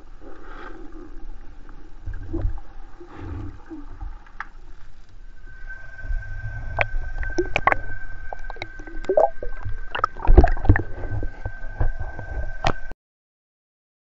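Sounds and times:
river water gurgling: 6.7s - 10.8s.

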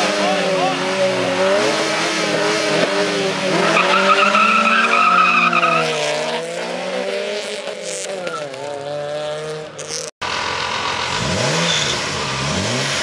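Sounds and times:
car engines revving high: 0.0s - 13.0s
tyres squealing: 3.7s - 6.0s.

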